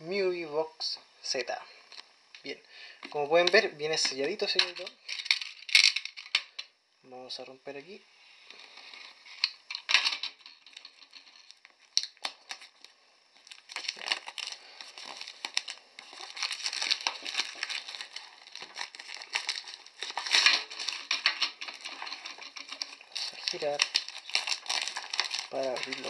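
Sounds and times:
shrink-wrap crinkling and tearing: 0:03.0 - 0:06.4, 0:08.7 - 0:26.0.

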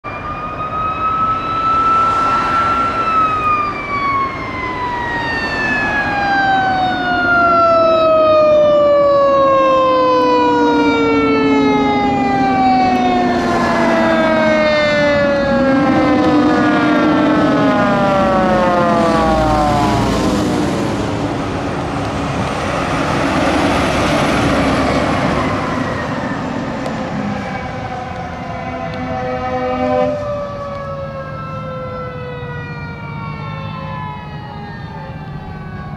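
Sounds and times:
fire engine siren: 0:00.0 - 0:35.9
truck engine rumbling past: 0:00.2 - 0:35.9.

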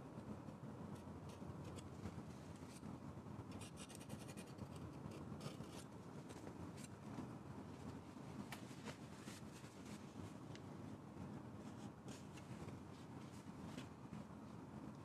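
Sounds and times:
low room hum: 0:00.0 - 0:15.0.

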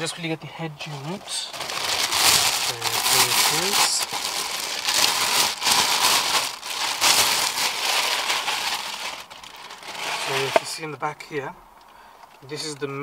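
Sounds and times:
plastic bag crinkling: 0:00.8 - 0:10.8.

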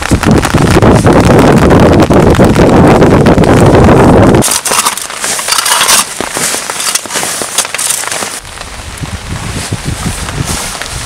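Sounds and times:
tarp flapping: 0:00.0 - 0:11.0
wind buffeting microphone: 0:00.0 - 0:11.0
shovel scraping soil: 0:04.4 - 0:08.4.

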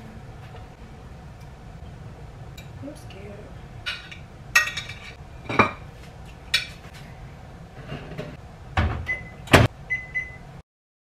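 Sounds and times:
low background hum: 0:00.0 - 0:10.6
dishes and utensils clinking: 0:03.8 - 0:05.9.

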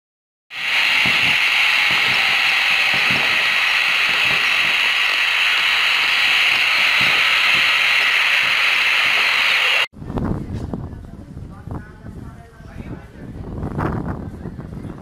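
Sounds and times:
loud steady hiss: 0:00.5 - 0:09.9.

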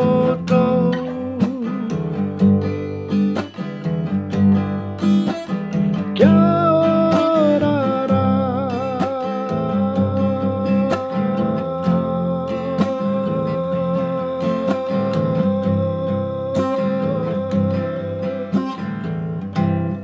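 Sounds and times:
acoustic guitar strumming: 0:00.0 - 0:20.0
man singing long note: 0:06.2 - 0:18.6.

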